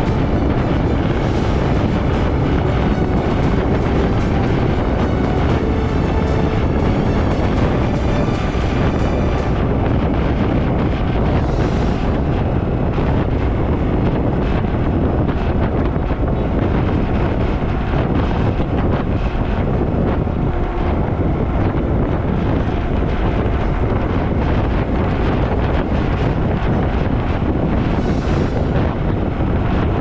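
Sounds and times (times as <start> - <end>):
wind rushing over microphone: 0.0 - 30.0.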